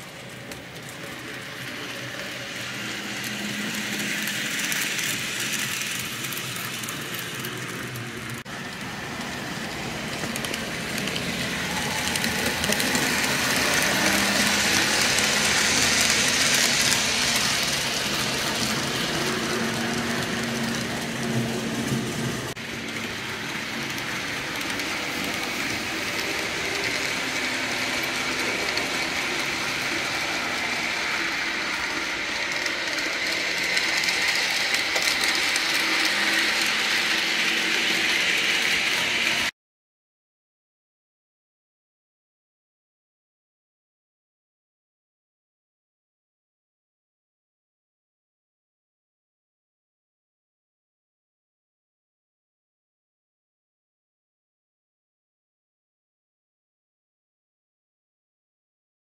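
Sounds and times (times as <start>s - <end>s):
model train wheels rattling on rails: 0.0s - 39.5s.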